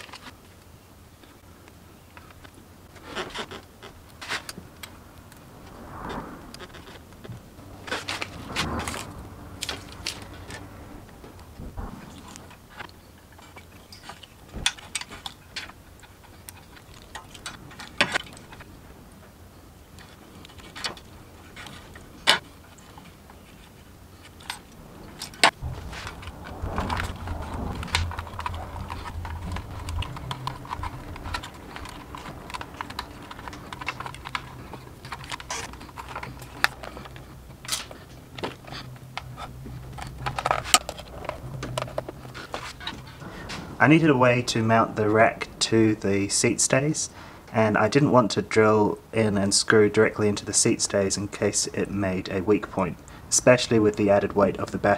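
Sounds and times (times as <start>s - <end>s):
low steady hum: 0.0s - 54.9s
clicks and rattles of cables: 20.0s - 43.8s.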